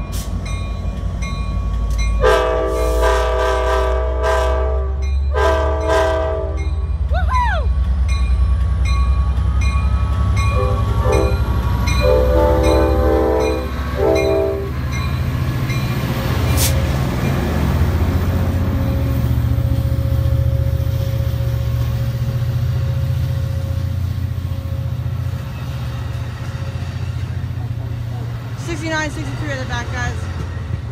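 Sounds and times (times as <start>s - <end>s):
diesel locomotive rumbling: 0.0s - 30.9s
rail noise of rolling cars: 0.0s - 30.9s
train horn blasts: 2.2s - 6.8s, 10.5s - 14.8s.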